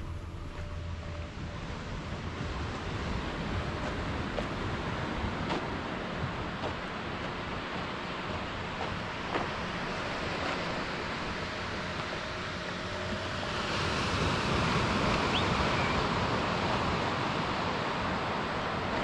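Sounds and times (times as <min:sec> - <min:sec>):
wind on microphone: 0:00.0 - 0:19.0
surf washing onto sand: 0:13.4 - 0:19.0.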